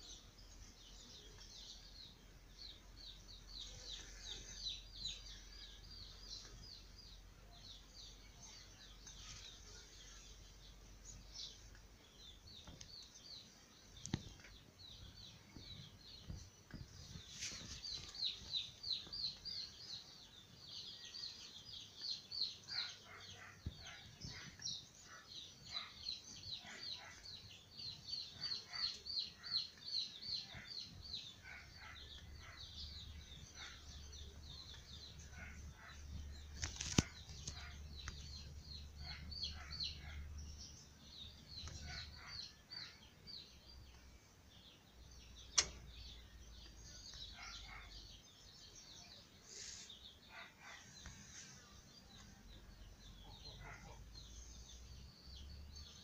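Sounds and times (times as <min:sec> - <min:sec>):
small birds chirping: 0:00.0 - 0:56.0
sharp click: 0:45.5 - 0:46.0.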